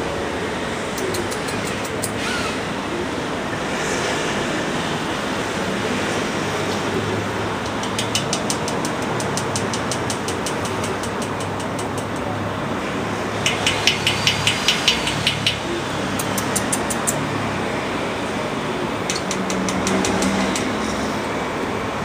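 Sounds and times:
urban background hum: 0:00.0 - 0:22.0
sharp ticking clicks: 0:07.6 - 0:12.3, 0:13.4 - 0:17.2, 0:19.1 - 0:20.8.

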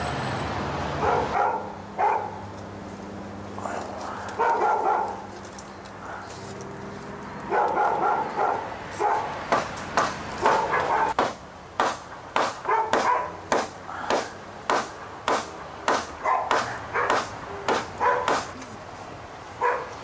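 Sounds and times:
dog barking: 0:01.0 - 0:02.4, 0:04.2 - 0:05.3, 0:07.4 - 0:09.4, 0:10.4 - 0:11.2, 0:12.6 - 0:13.4, 0:16.2 - 0:18.5, 0:19.6 - 0:20.0.

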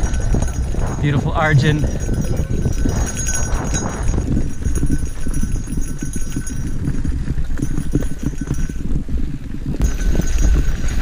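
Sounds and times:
wind on microphone: 0:00.0 - 0:11.0
bike rattling over stones: 0:02.0 - 0:11.0.

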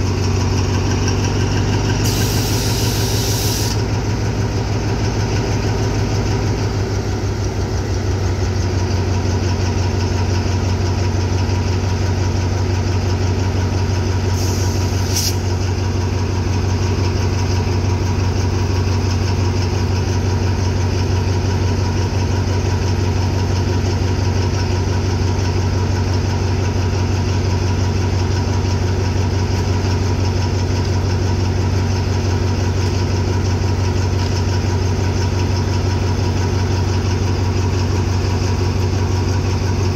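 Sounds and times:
diesel locomotive idling: 0:00.0 - 0:39.9
short hiss: 0:02.0 - 0:03.8, 0:14.4 - 0:15.5.

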